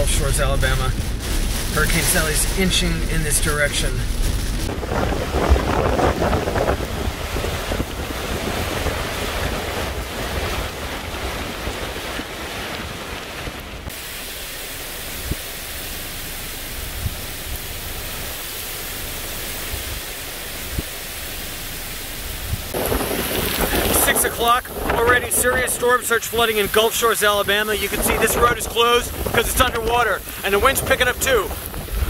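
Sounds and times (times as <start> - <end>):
wind buffeting microphone: 0.0 - 14.0, 22.3 - 32.0
heavy rain: 0.0 - 32.0
hurricane wind: 0.0 - 32.0.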